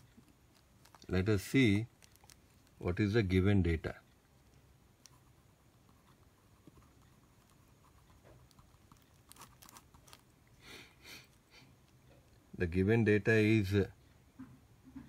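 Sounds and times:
pen scratching on paper: 5.1 - 9.6.

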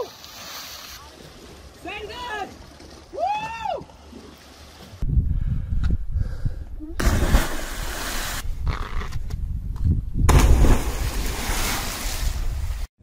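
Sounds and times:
people jumping into water splashing: 7.0 - 8.4, 10.3 - 12.8.

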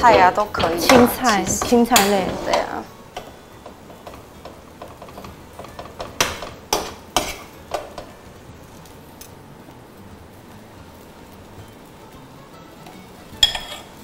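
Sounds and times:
spoon knocking against pan: 0.0 - 8.1
spoon scraping frying pan: 0.0 - 8.2, 13.0 - 14.0.

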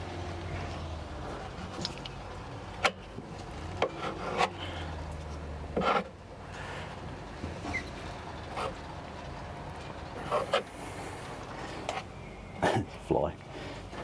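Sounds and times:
putty knife scraping: 3.8 - 4.6, 5.8 - 6.1.

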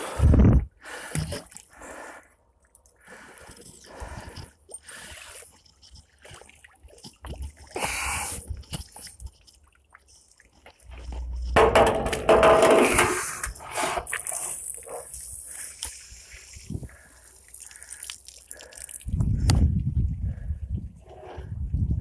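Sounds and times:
water sloshing and dripping: 0.9 - 19.6
water spilling: 13.1 - 19.2.

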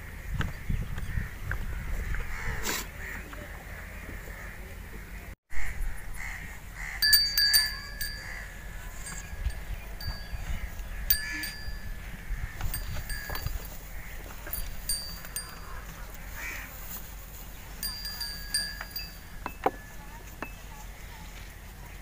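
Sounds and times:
small metal bell tinkling: 7.0 - 12.0, 12.7 - 13.8, 14.4 - 15.8, 17.8 - 20.6.

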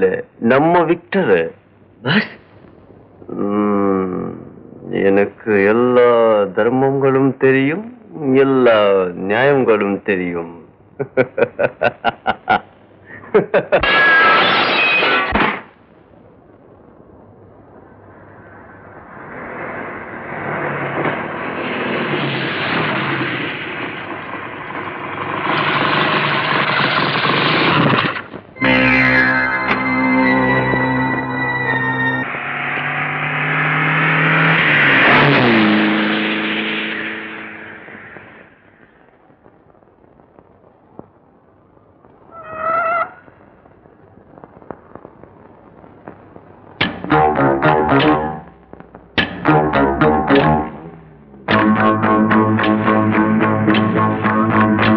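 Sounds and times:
faint crackle and clicks: 2.4 - 3.3, 15.3 - 28.6, 37.8 - 47.1, 48.0 - 49.4
dramatic film score chord: 28.6 - 32.2
electric guitar music: 28.6 - 32.3, 46.8 - 54.9
high wavering tone: 28.6 - 38.1
motor vehicle engine: 28.8 - 38.3.

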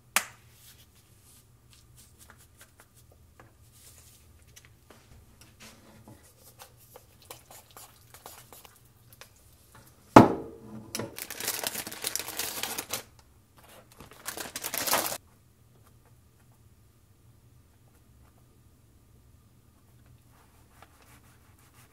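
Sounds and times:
plastic bag crinkling: 11.1 - 15.2.

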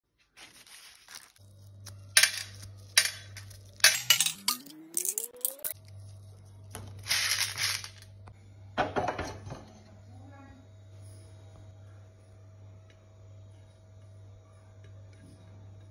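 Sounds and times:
corn kernels clattering into bowl: 2.2 - 5.8, 6.9 - 8.1.

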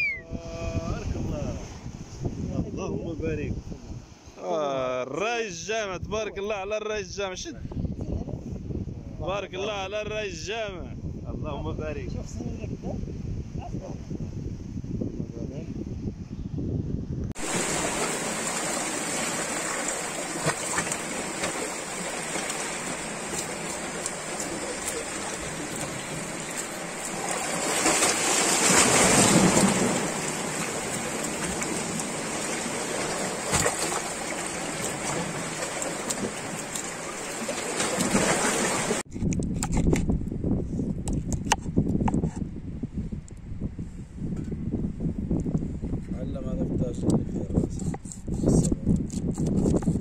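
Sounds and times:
water rushing: 17.4 - 39.1.

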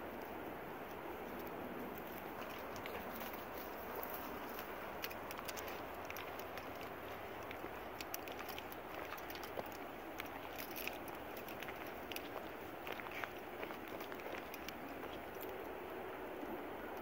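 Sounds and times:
steady background hiss: 0.0 - 17.0.

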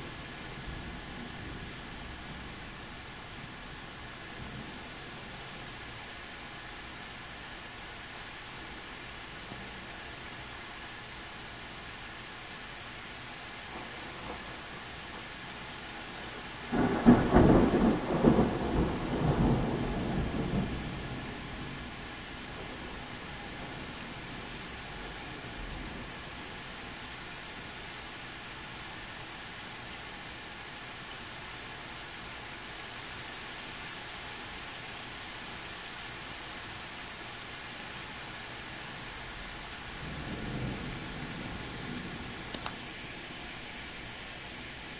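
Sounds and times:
steady rain falling: 0.0 - 44.9
thunder clap rumbling: 16.7 - 21.8.

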